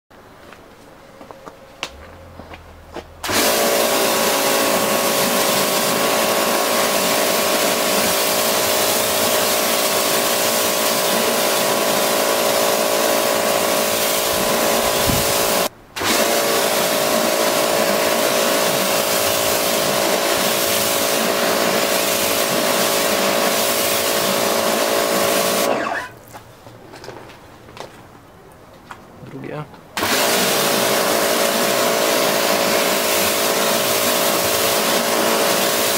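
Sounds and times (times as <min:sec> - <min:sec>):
pressure washer motor whine: 0:01.8 - 0:26.2, 0:30.0 - 0:35.9
water jet hissing: 0:03.2 - 0:26.1.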